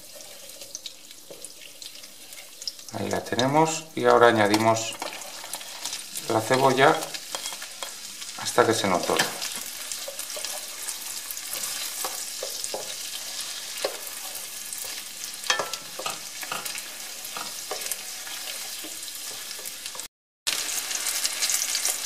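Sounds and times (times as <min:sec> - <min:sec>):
onion sizzling in butter: 0:00.0 - 0:22.0
wooden spoon scraping pan: 0:04.8 - 0:06.0, 0:07.0 - 0:08.1, 0:08.9 - 0:20.0.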